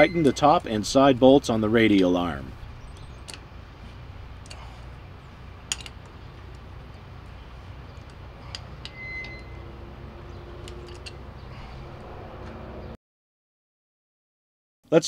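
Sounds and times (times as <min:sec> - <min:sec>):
steady low hum: 0:00.0 - 0:12.8
wrench clinking on steel bolts: 0:05.6 - 0:07.0, 0:07.9 - 0:09.6, 0:10.6 - 0:11.3.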